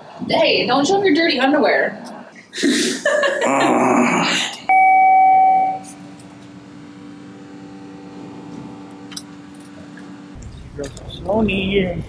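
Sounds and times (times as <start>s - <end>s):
electronic chime ding: 4.7s - 6.0s.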